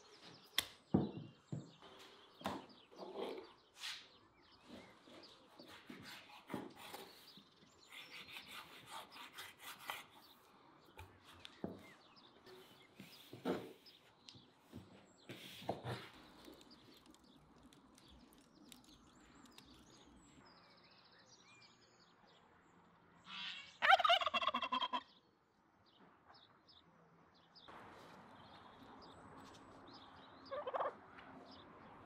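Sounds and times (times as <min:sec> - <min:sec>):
turkey gobbling: 0:23.4 - 0:25.1, 0:30.5 - 0:31.0.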